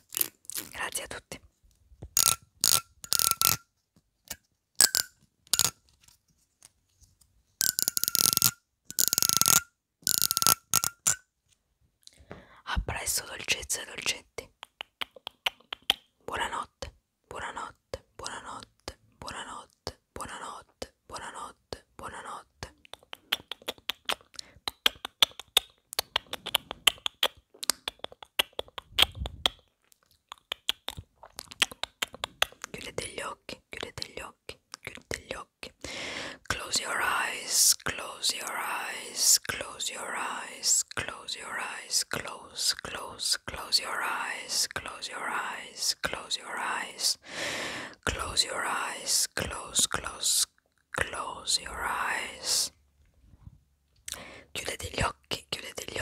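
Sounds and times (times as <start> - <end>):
comb teeth flicked with fingernail: 2.2 - 3.6, 7.6 - 11.2, 14.5 - 16.1
tongue clicks: 7.6 - 11.2, 14.4 - 16.2, 22.6 - 33.0
lip smacks: 14.4 - 16.1, 22.6 - 32.8.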